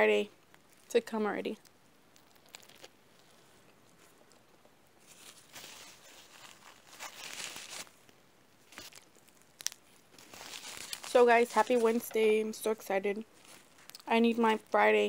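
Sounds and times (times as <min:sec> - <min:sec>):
faint chewing: 0:01.6 - 0:07.0
paper napkin rustling: 0:05.0 - 0:08.0, 0:10.1 - 0:12.4.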